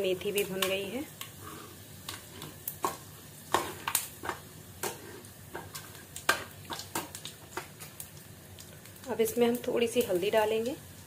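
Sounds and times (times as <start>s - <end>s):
spices sizzling in hot oil: 0.0s - 11.0s.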